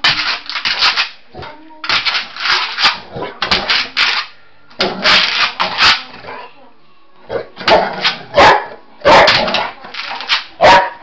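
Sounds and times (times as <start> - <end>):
dog paws scratching wall: 0.0 - 1.2.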